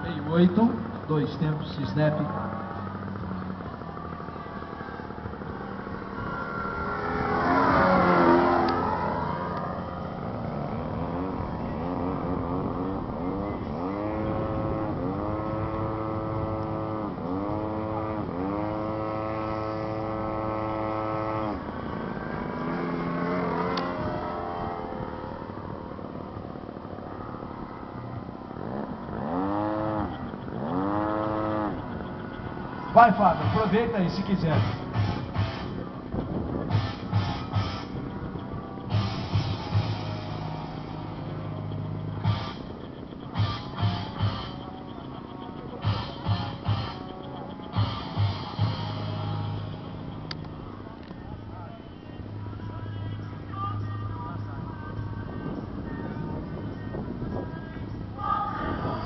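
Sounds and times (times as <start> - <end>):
model airplane motor whining: 2.8 - 26.9, 28.5 - 44.9.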